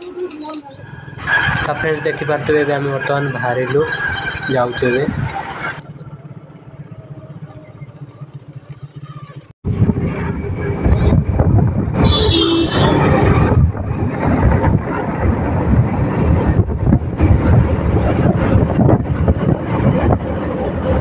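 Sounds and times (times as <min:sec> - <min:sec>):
motorbike engine running: 0:05.8 - 0:14.8
wind buffeting microphone: 0:09.0 - 0:21.0.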